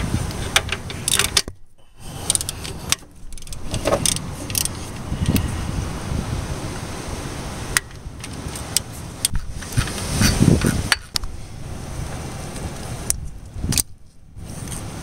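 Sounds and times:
ratchet wrench clicking: 0.5 - 5.4.

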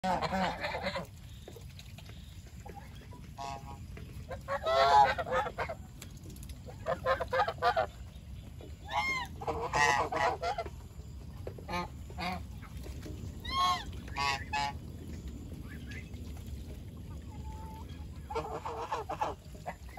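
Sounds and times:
geese honking: 0.0 - 1.3, 3.2 - 5.8, 6.8 - 7.9, 8.8 - 10.8, 11.6 - 12.7, 13.4 - 14.8, 17.3 - 19.9.

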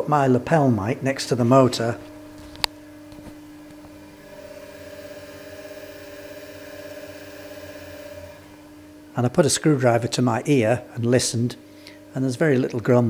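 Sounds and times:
electric motor humming: 2.0 - 9.1.

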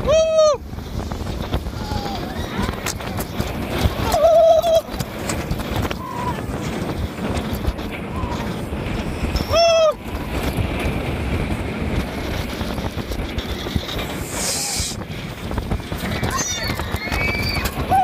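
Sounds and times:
roller coaster train rumbling: 0.0 - 18.0
wind over microphone: 0.0 - 18.0
rider screaming: 16.1 - 18.0.

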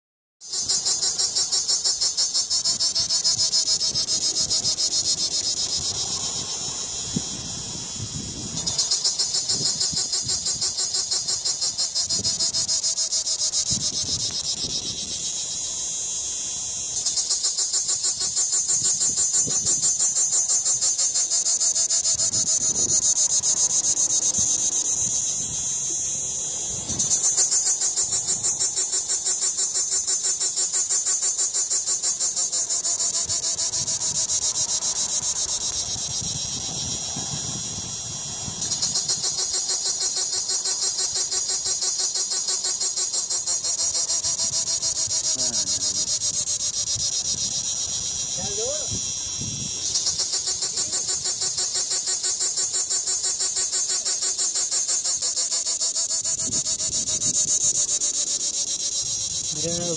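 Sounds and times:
cicada buzzing: 0.4 - 59.9.

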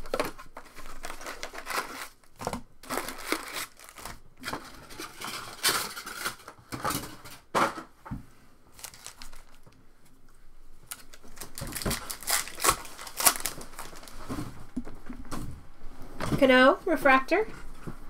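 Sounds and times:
packs and cardboard box crinkling: 0.0 - 7.4, 8.7 - 9.8, 10.8 - 15.0.

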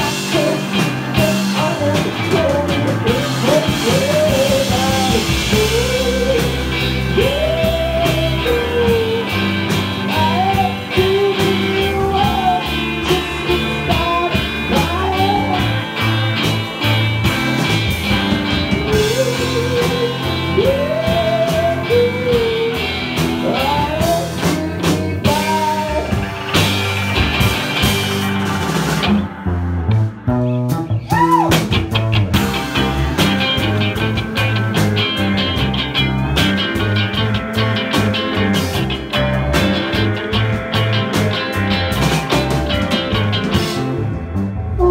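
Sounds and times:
man singing: 0.0 - 16.2, 18.8 - 26.2
rock band playing: 0.0 - 44.9.

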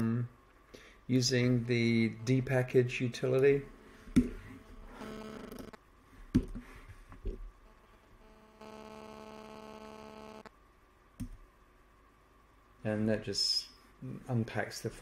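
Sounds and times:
steady tonal hum: 1.1 - 10.5.

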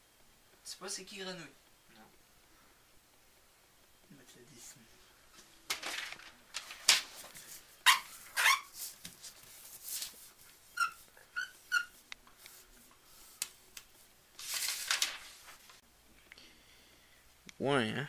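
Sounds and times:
short high squeaks: 7.8 - 8.8, 10.7 - 12.0.

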